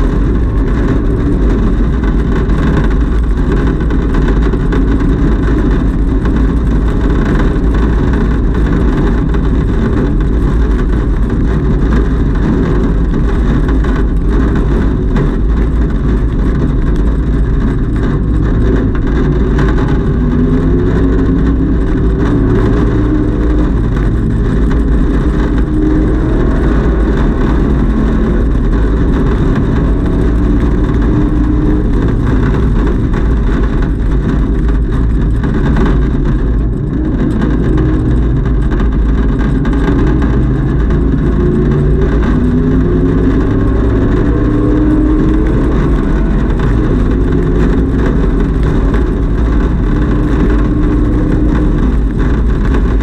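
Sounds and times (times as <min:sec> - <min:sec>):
car engine running hard: 0:00.0 - 0:53.0
road and wind noise: 0:00.0 - 0:53.0.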